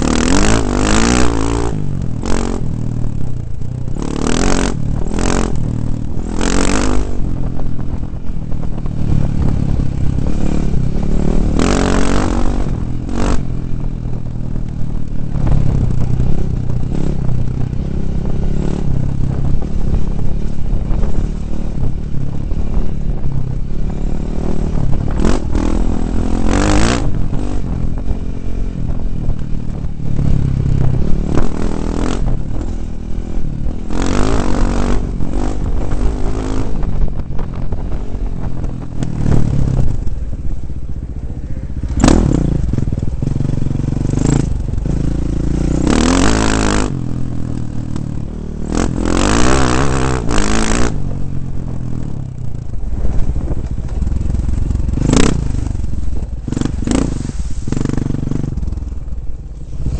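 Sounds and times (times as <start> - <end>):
dirt bike engine revving: 0.0 - 8.0, 8.6 - 13.6, 15.3 - 40.1, 41.7 - 51.6, 54.1 - 58.9
rumble and clatter: 0.0 - 59.9
short loud rushes of noise: 56.6 - 59.0.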